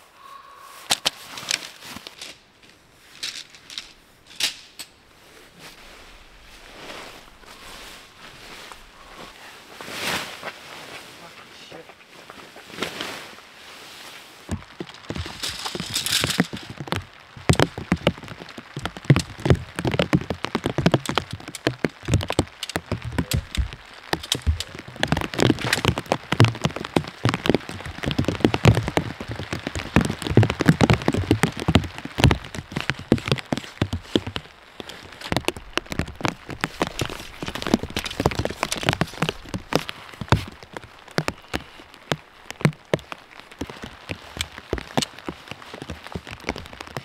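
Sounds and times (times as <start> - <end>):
tent fabric rustling: 0.8 - 4.4, 5.1 - 17.2
tent poles clicking: 0.8 - 5.0, 14.5 - 47.0.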